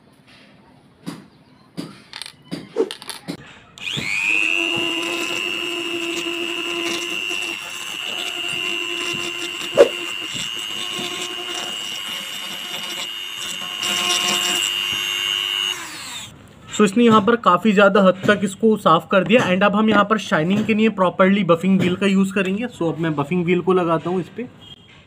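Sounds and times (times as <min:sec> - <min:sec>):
rotary tool whining: 0:02.1 - 0:16.3
polishing bit grinding wood: 0:03.8 - 0:16.3.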